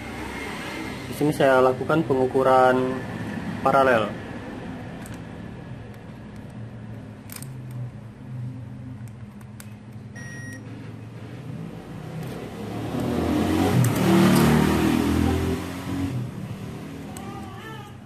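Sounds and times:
multimeter beep: 10.1s - 10.7s.

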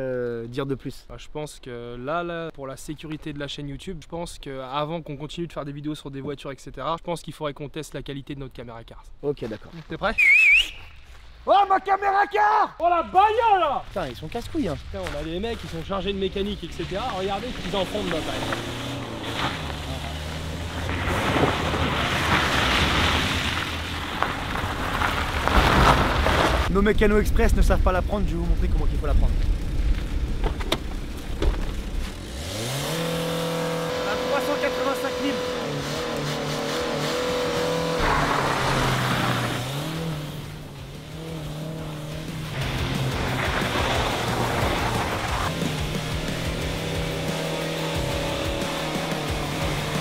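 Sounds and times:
tyres scrabbling over gravel: 13.8s - 26.7s, 28.9s - 32.8s, 37.4s - 46.0s
car engine under load: 16.4s - 26.7s, 28.4s - 50.0s.

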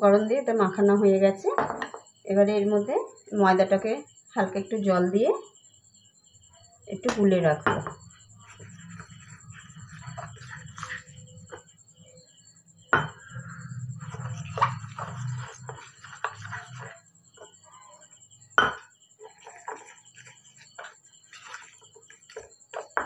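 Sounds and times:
spoon stirring batter in metal bowl: 7.0s - 11.7s, 13.1s - 18.1s, 19.2s - 23.0s.

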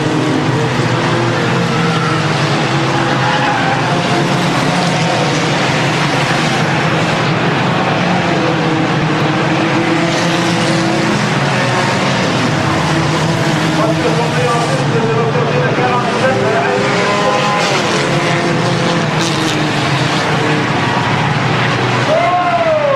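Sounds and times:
racing car engines: 0.0s - 22.9s.

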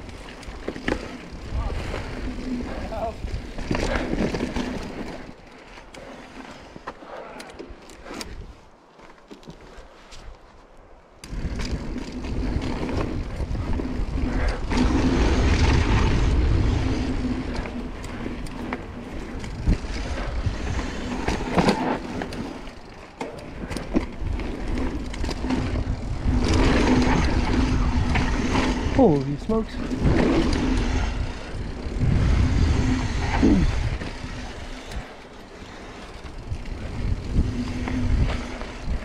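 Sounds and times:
bike tyres rolling on dirt: 0.0s - 39.0s.

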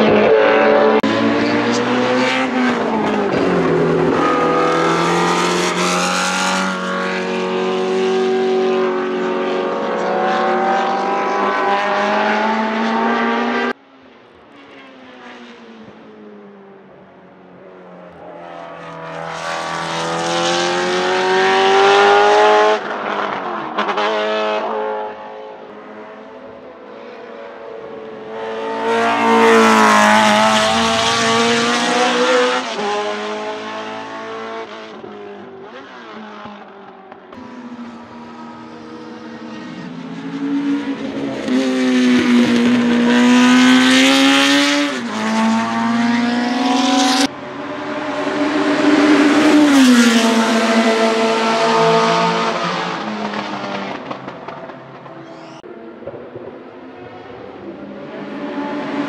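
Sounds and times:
racing car engine accelerating: 18.1s - 59.0s.

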